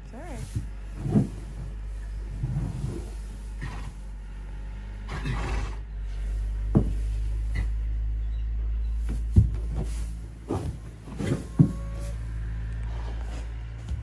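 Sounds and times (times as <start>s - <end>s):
steady low hum: 0.0s - 14.0s
rustling straw bedding: 0.1s - 5.1s, 6.0s - 14.0s
horse breathing hard and grunting: 0.4s - 4.2s, 5.0s - 7.7s, 12.8s - 13.8s.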